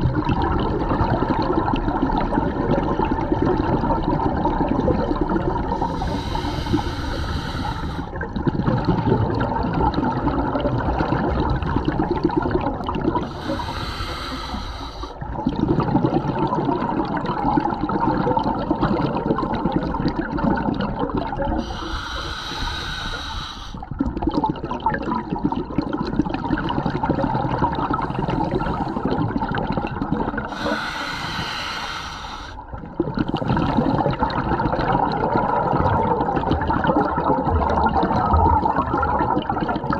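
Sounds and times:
exhaled air bubbling: 0.0 - 39.9
diver inhaling through regulator: 5.7 - 8.2, 13.2 - 15.2, 21.6 - 23.9, 27.9 - 29.3, 30.4 - 32.7.

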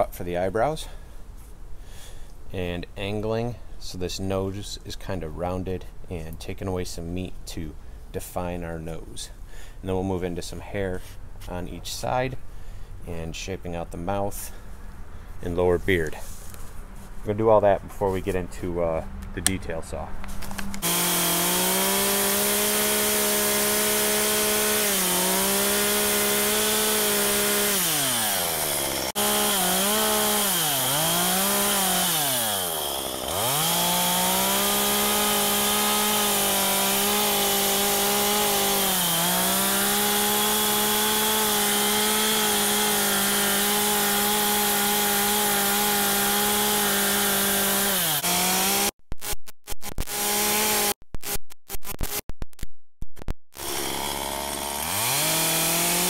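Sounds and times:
chainsaw cutting log: 20.8 - 49.0, 49.9 - 51.0, 53.6 - 56.0.

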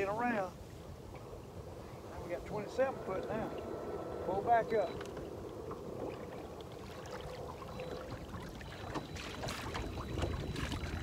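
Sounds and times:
low wind rumble: 0.0 - 11.0
waves lapping against hull: 0.0 - 11.0
light knocks and splashes: 5.0 - 11.0.

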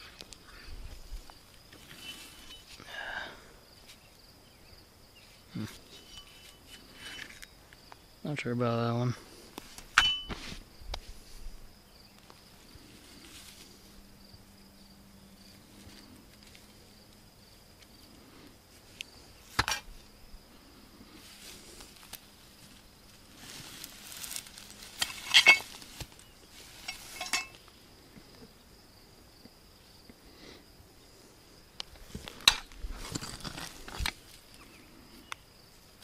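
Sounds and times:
rustling: 0.0 - 2.8, 12.2 - 14.0, 21.0 - 27.7
high insect drone: 0.0 - 36.0
scrap metal clanking: 1.8 - 2.7, 24.9 - 25.8, 26.7 - 27.6.

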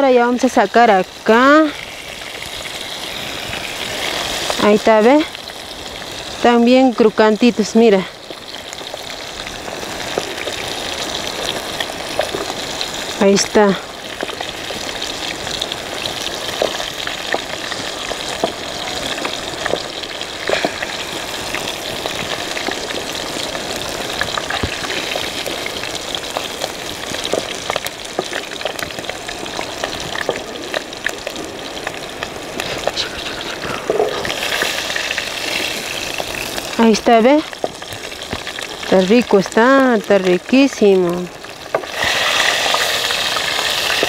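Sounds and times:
fish frying in hot oil: 0.0 - 44.0
oil popping: 8.2 - 13.2, 13.9 - 44.0.

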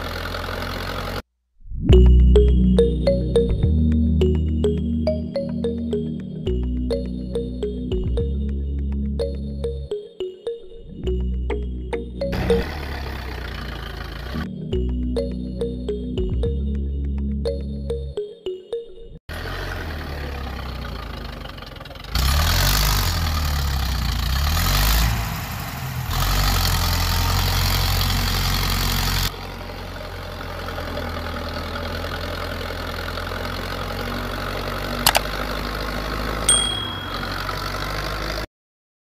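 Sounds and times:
short high ding: 36.5 - 37.6.

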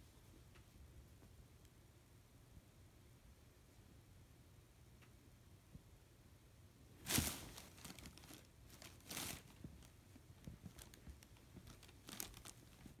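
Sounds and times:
quilt fabric rustling: 7.0 - 13.0.

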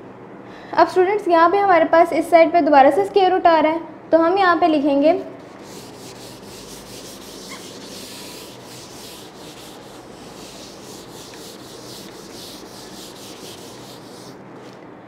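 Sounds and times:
eraser rubbing on whiteboard: 5.4 - 14.8.

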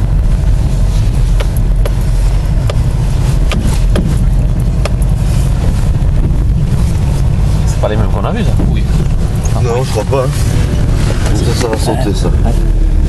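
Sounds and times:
engine and road noise rumble: 0.0 - 13.0
sharp knocks and rattles: 1.4 - 5.2.

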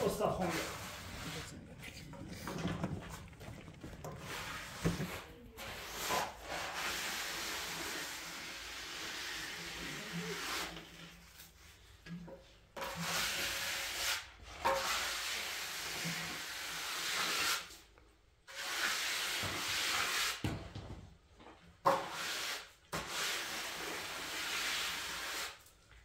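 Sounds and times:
rubbing on hard surface: 0.0 - 12.0.

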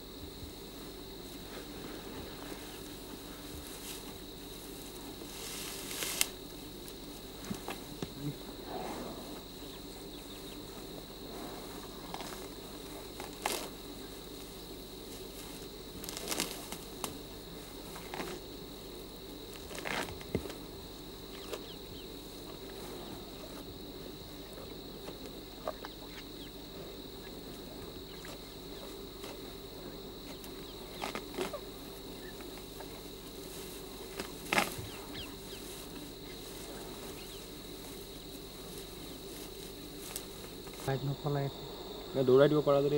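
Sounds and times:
grass being torn and chewed: 5.2 - 8.1, 12.0 - 13.8, 15.2 - 17.2, 19.5 - 20.6, 30.2 - 40.9.

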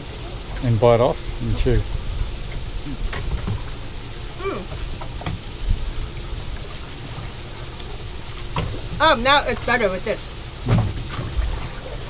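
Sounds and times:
wind buffeting microphone: 0.0 - 12.0
person murmuring: 4.4 - 4.7.

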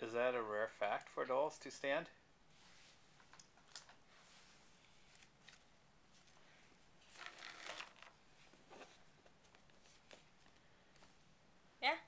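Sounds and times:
plastic doll rustle: 2.6 - 11.2.

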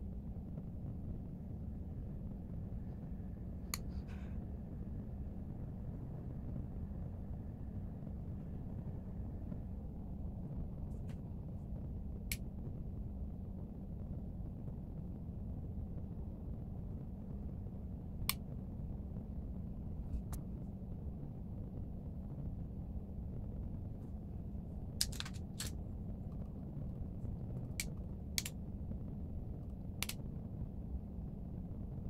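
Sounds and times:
low room hum: 0.0 - 32.0
make-up compact clicks: 25.0 - 26.4, 27.7 - 28.6, 30.0 - 30.2.

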